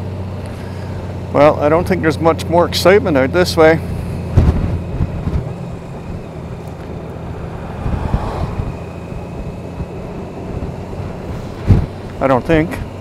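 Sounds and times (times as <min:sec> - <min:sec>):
motorcycle engine running: 0:00.0 - 0:13.0
wind rushing over microphone: 0:04.2 - 0:12.6.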